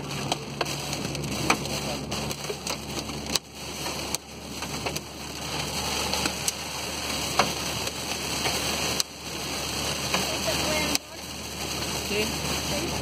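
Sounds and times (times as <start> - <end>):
heavy rain and wind on car: 0.0 - 13.0
raindrops ticking on windshield: 0.0 - 13.0.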